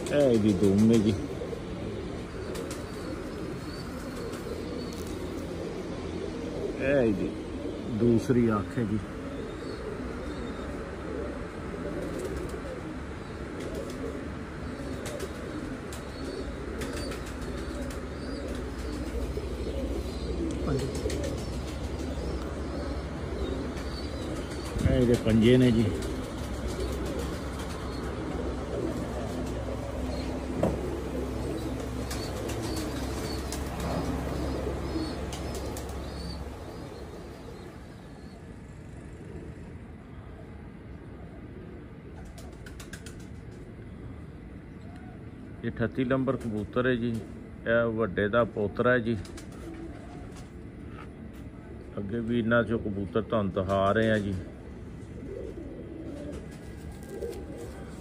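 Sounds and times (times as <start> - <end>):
low steady hum: 0.0 - 58.0
pigeons cooing: 0.0 - 58.0
pigeon wing flaps: 2.5 - 3.2, 11.9 - 12.8, 13.5 - 14.2, 14.8 - 22.3, 23.7 - 29.8, 30.5 - 36.4, 42.2 - 43.7, 49.2 - 50.6, 55.4 - 58.0.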